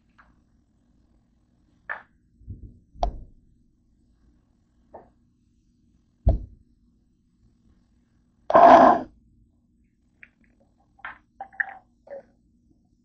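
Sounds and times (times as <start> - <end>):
person clearing throat: 8.5 - 9.1.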